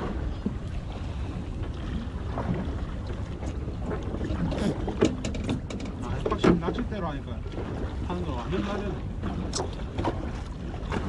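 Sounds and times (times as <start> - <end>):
boat engine idling: 0.0 - 11.0.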